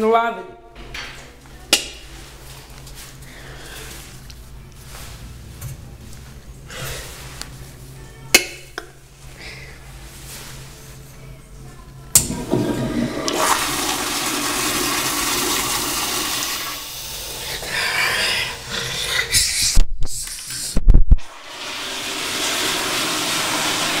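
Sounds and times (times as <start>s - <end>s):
toilet flushing: 12.2s - 17.7s, 21.3s - 24.0s.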